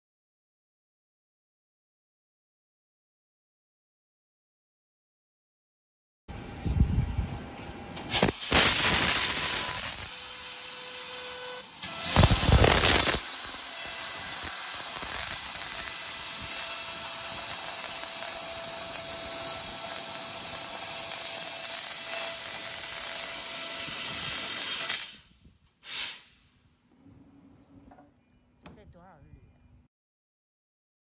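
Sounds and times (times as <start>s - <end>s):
gas jet hissing: 25.8s - 26.4s.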